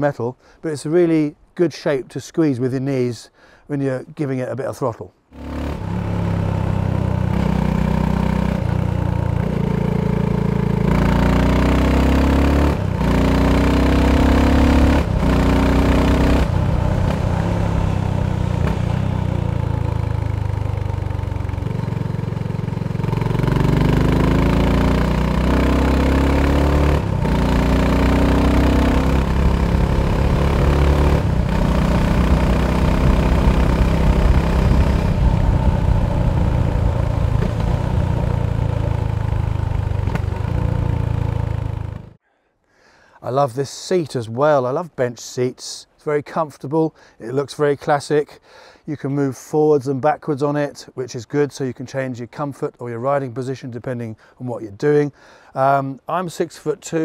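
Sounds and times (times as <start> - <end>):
motorcycle engine accelerating: 5.3 - 42.2.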